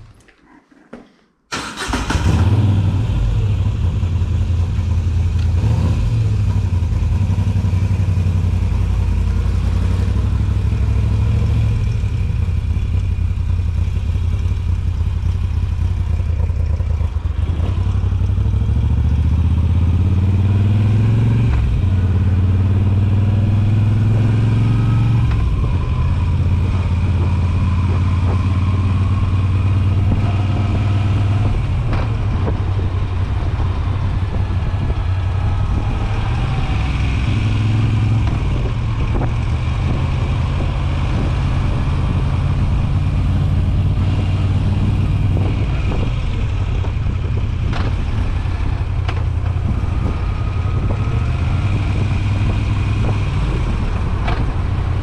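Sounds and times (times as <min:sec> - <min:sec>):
motorcycle engine accelerating: 0:01.5 - 0:55.0.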